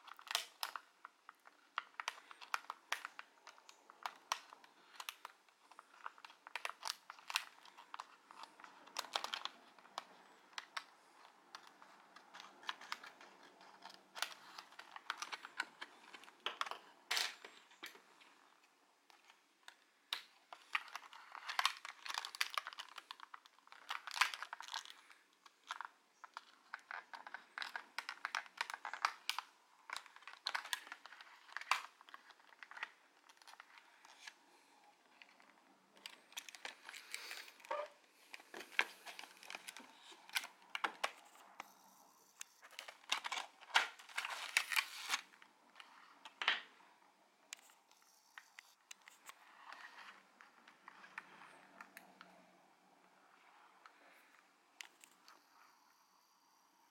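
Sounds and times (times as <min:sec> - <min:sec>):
plastic packaging crinkling: 0:00.0 - 0:51.9.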